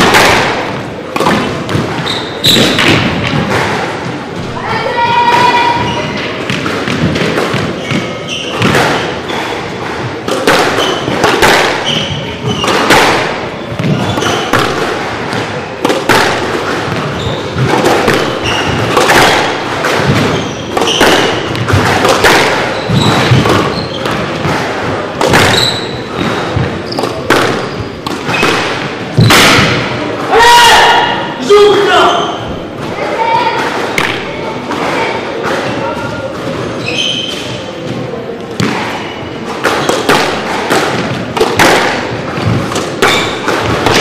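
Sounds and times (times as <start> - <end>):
squash ball striking rackets and walls: 0.0 - 31.4, 32.3 - 44.0
shoes squeaking on wooden floor: 0.7 - 15.9, 16.6 - 29.4, 35.8 - 41.4.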